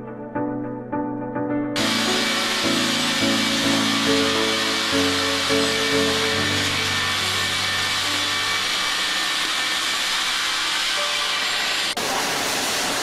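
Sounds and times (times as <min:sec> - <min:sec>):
sawmill saw cutting wood: 0:01.8 - 0:13.0.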